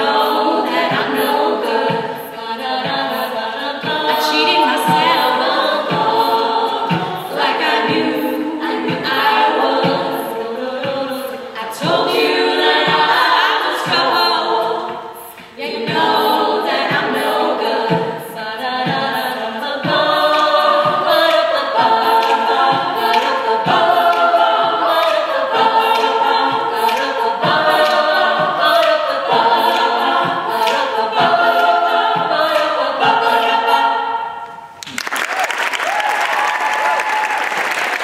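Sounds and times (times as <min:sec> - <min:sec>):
vocal percussion beat: 0:00.0 - 0:34.0
sustained backing voices: 0:00.0 - 0:34.8.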